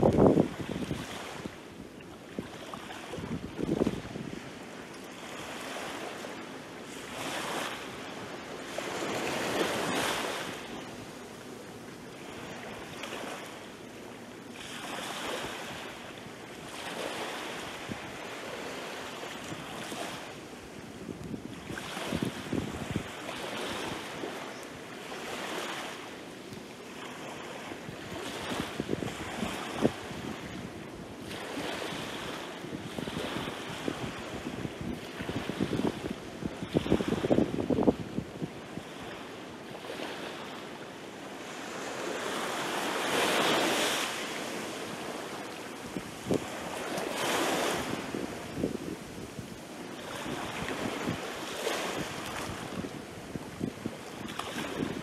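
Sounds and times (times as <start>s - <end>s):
small waves lapping on beach: 0.0s - 55.0s.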